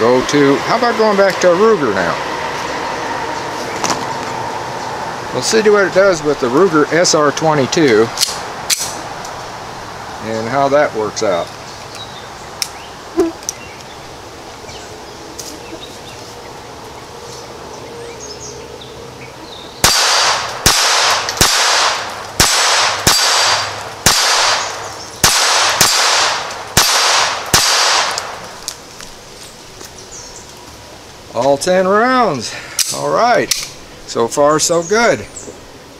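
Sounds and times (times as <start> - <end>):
pistol shots: 19.8 - 28.4.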